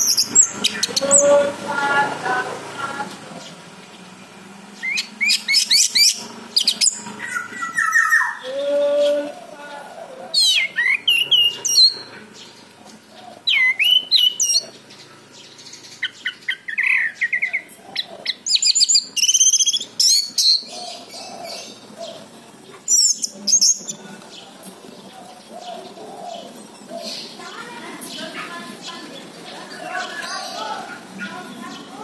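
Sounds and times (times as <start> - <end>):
thrush song whistles and trills: 4.8 - 8.5.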